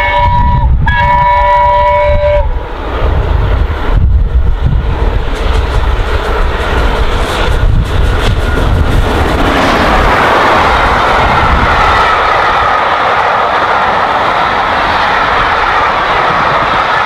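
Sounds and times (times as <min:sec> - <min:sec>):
steam locomotive chime whistle: 0:00.0 - 0:02.6
passing train rumble and hiss: 0:00.0 - 0:17.0.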